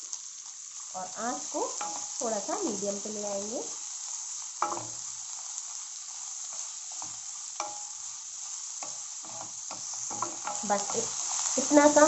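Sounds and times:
onions sizzling in hot oil: 0.0s - 12.0s
wooden spatula scraping a pan: 8.8s - 12.0s.

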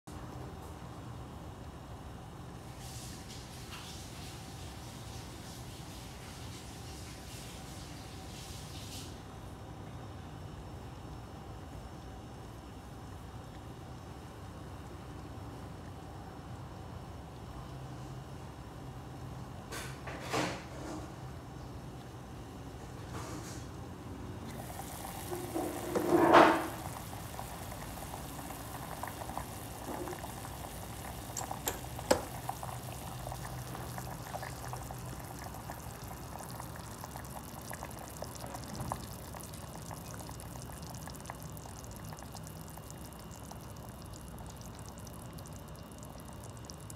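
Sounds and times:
broth bubbling in a pot: 24.4s - 46.9s
pot lid clatter: 25.3s - 26.9s, 31.3s - 32.4s.

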